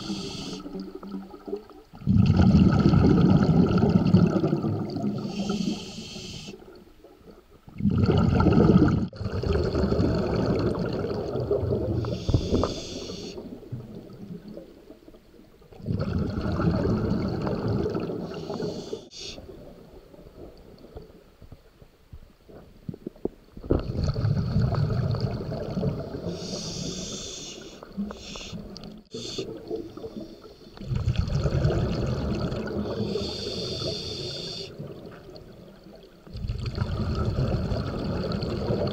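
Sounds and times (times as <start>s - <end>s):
regulator breathing hiss: 0.0s - 0.8s, 5.2s - 6.7s, 12.0s - 13.5s, 18.3s - 19.4s, 26.4s - 29.5s, 33.0s - 34.8s
exhaled bubbles gurgling: 0.0s - 21.2s, 22.8s - 38.9s.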